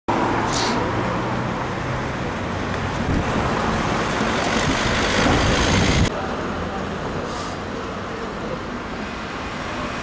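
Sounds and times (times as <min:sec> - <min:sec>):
street traffic: 0:00.1 - 0:10.0
short hiss: 0:00.5 - 0:00.8.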